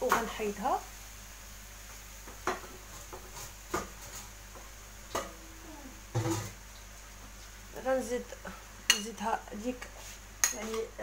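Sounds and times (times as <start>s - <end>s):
faint hiss of cream on hob: 9.5s - 10.4s.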